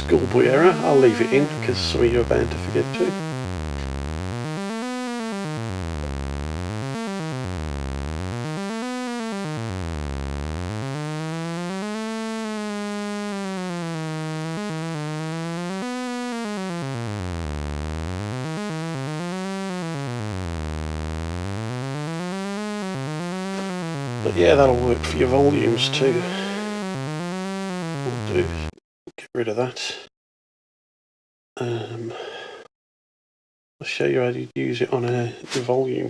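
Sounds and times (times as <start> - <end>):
sawtooth synthesizer drone sweeping: 0.0 - 28.7.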